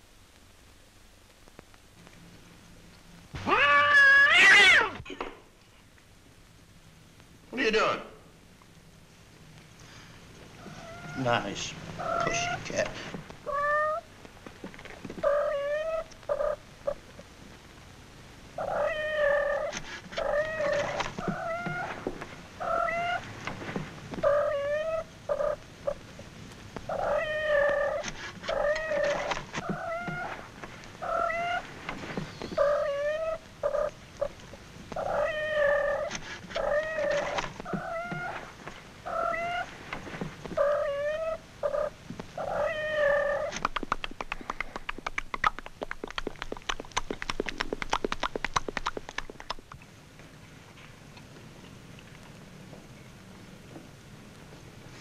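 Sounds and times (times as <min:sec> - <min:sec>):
cat meowing: 0:03.4 - 0:05.0, 0:10.6 - 0:11.4, 0:12.0 - 0:12.8, 0:13.4 - 0:14.1, 0:15.2 - 0:16.6, 0:18.6 - 0:22.0, 0:22.6 - 0:23.2, 0:24.2 - 0:25.6, 0:26.9 - 0:31.7, 0:32.4 - 0:34.3, 0:35.0 - 0:38.5, 0:39.1 - 0:39.7, 0:40.6 - 0:43.6.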